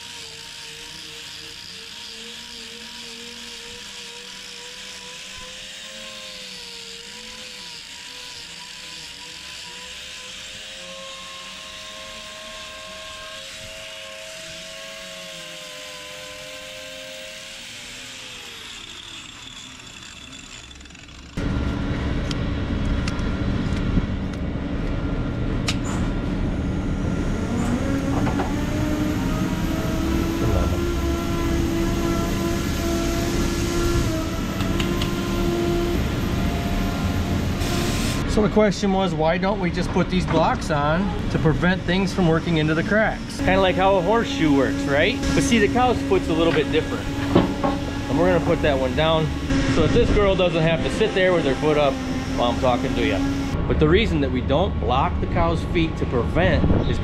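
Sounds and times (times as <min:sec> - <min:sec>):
angle grinder whining: 0:00.0 - 0:22.4, 0:26.2 - 0:38.4, 0:39.2 - 0:53.6
loud mechanical rumble: 0:07.8 - 0:57.0.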